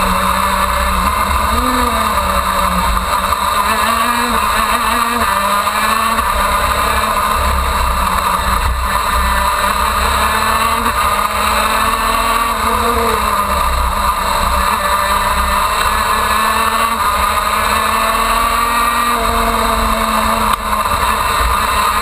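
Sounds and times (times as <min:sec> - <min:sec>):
kart engine at high revs: 0:00.0 - 0:22.0.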